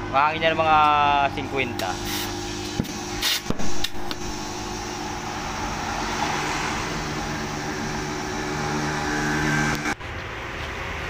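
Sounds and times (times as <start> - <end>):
low mechanical hum: 0.0 - 11.0
compressed air hissing into tire: 1.7 - 10.0.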